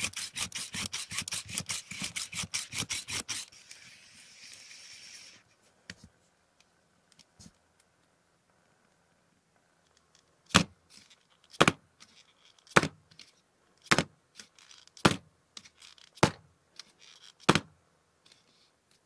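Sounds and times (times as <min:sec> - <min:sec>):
faint rustling of handling: 0:03.5 - 0:17.4, 0:18.2 - 0:19.0.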